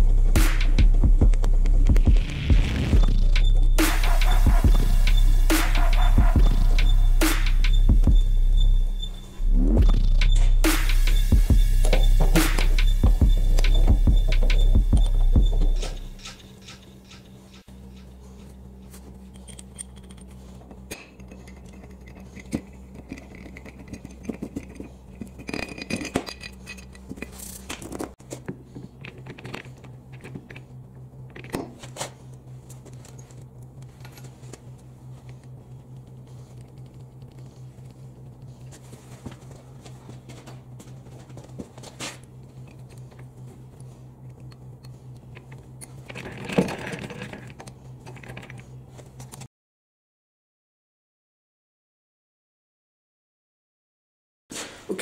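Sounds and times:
low hum: 0.0 - 49.5
metal clicks and scrapes: 11.8 - 38.0, 42.2 - 49.5.

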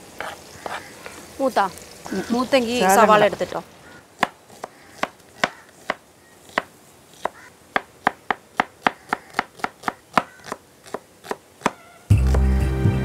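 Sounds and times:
knife chopping on wooden board: 0.2 - 1.2, 4.2 - 12.4.

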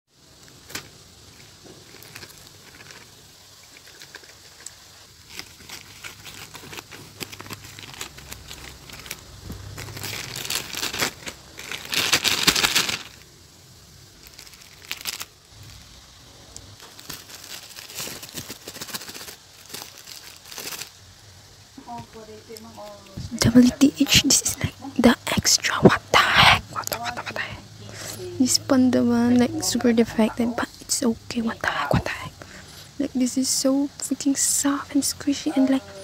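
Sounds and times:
plastic wrapping rustling: 0.3 - 13.3, 14.0 - 21.2
plastic mailer bag crinkling: 0.4 - 13.3, 14.1 - 15.9, 16.8 - 21.0.

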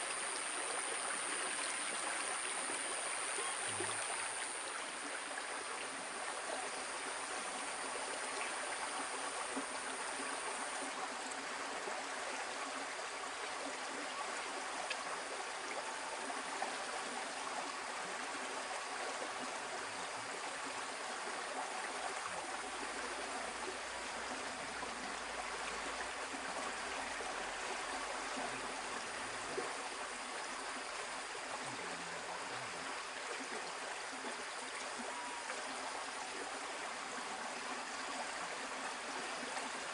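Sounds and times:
stream trickling over stones: 0.0 - 39.9.

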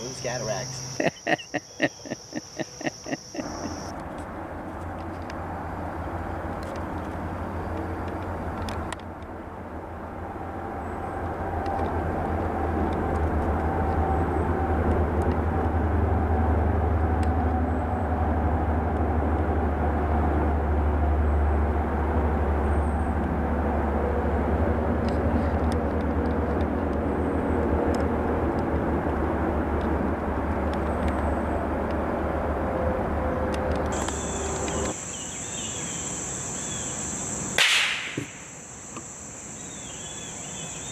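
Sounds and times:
insects chirring: 0.0 - 3.9, 33.9 - 40.9
distant engine rumble: 0.0 - 40.7.

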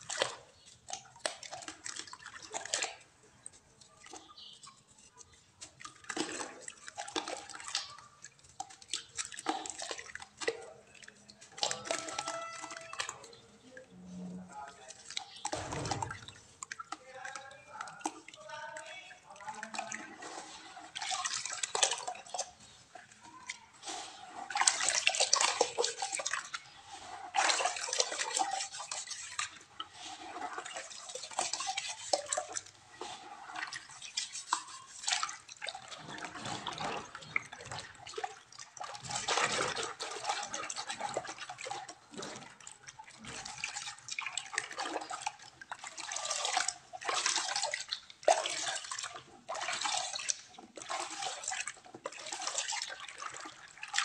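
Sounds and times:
hands sloshing in muddy water: 0.0 - 14.0, 14.8 - 54.0
water dripping and trickling: 0.0 - 54.0.

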